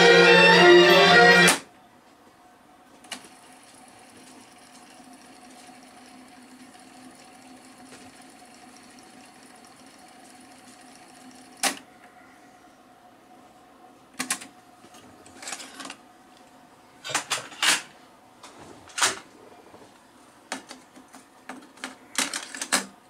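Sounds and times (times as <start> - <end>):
music from tape: 0.0 - 1.6.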